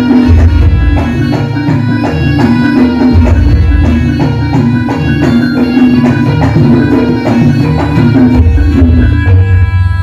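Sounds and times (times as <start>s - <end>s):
gamelan ensemble playing: 0.0s - 10.0s
hand drums beating: 0.0s - 10.0s.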